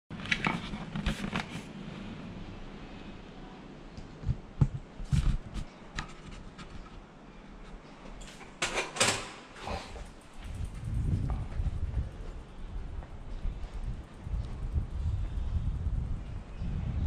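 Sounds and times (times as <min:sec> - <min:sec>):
bicycle scuffing on tiled floor: 0:04.3 - 0:07.0
bicycle clicks and knocks: 0:08.2 - 0:11.0.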